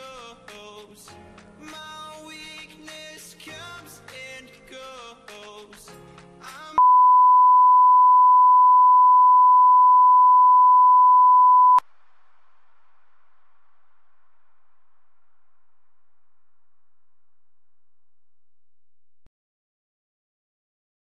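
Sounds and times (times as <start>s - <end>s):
background music: 0.0s - 6.8s.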